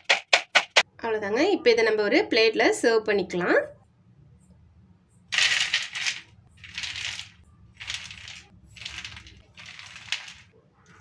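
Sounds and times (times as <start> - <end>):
fried corn rattling onto plate: 5.4 - 10.5.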